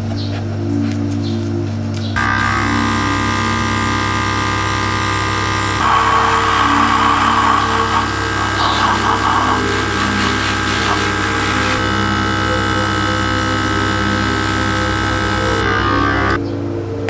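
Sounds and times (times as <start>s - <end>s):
compressor running: 2.2s - 16.4s
airbrush air hiss: 2.4s - 15.6s.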